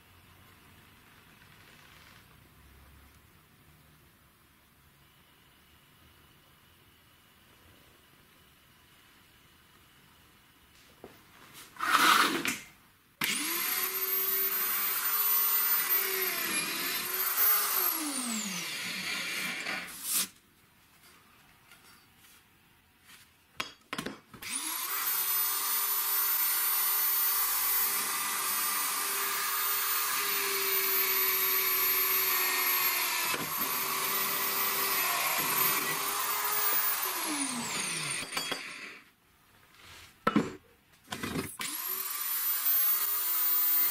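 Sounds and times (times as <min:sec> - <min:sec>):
electric drill whining: 0:13.2 - 0:20.0, 0:24.4 - 0:39.1, 0:41.6 - 0:43.9.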